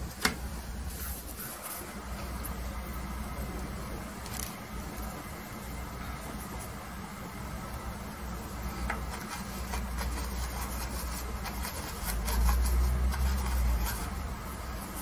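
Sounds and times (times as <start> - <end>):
low steady hum: 0.0 - 15.0
paintbrush scrubbing on canvas: 8.6 - 15.0.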